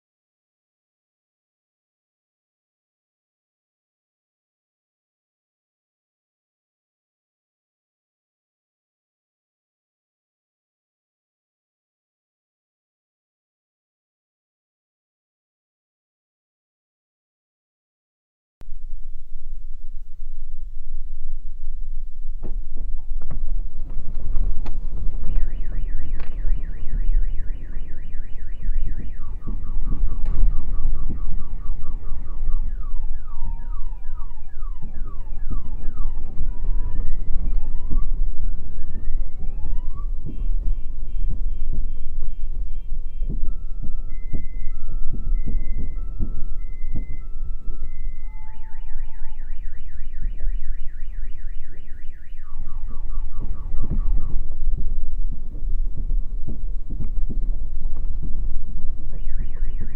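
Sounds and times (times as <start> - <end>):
low rumble: 18.6 - 59.9
car alarm cycling tones: 18.9 - 59.9.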